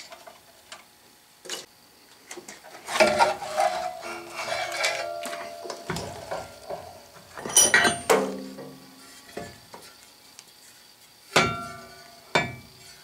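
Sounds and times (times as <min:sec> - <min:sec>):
steel parts clanking against metal: 0:02.9 - 0:08.8.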